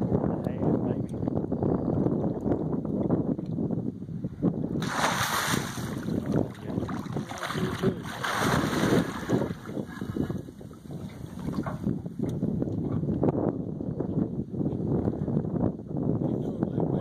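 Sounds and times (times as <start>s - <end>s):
fish thrashing and splashing water: 4.8s - 9.8s.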